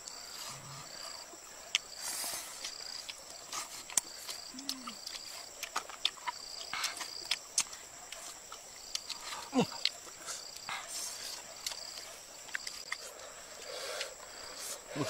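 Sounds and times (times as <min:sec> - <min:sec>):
insects chirping: 0:00.0 - 0:15.0.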